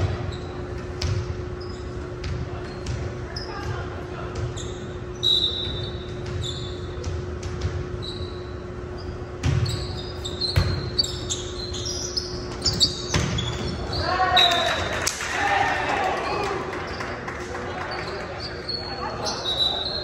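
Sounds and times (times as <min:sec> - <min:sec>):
sneakers squeaking on wooden floor: 0:00.2 - 0:03.8, 0:04.4 - 0:14.6, 0:17.9 - 0:20.0.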